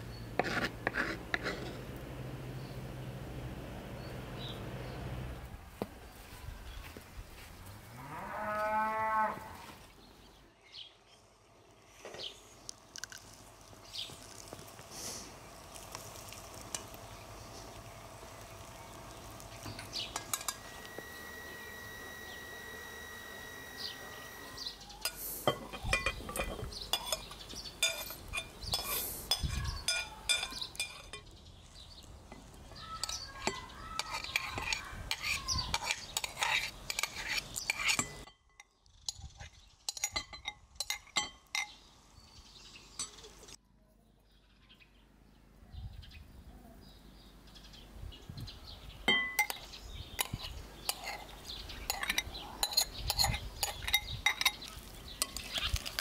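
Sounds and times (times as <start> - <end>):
metal spoon scraping bowls: 0.4 - 2.0, 19.1 - 31.3, 32.3 - 41.8, 49.1 - 56.0.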